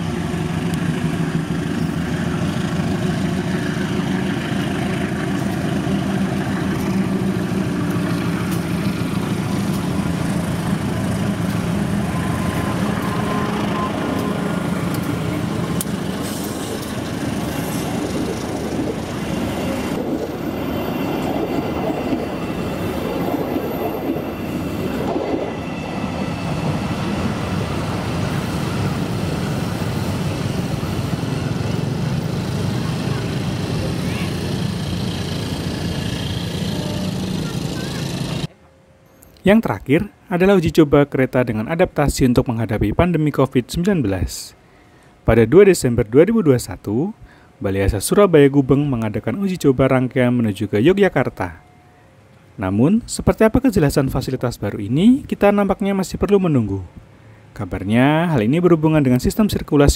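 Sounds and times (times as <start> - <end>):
train wheels clattering on rails: 0.0 - 12.1
locomotive engine running: 0.0 - 38.5.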